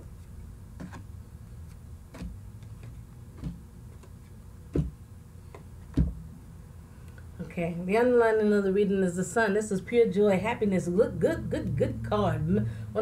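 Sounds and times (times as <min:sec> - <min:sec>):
low steady hum: 0:00.0 - 0:13.0
cards being shuffled: 0:00.2 - 0:04.9.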